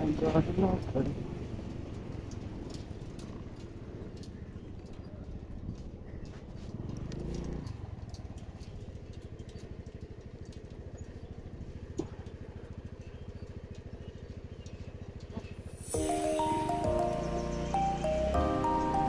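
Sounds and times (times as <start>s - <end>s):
motorcycle engine running: 0.0s - 19.0s
background music: 15.8s - 19.0s.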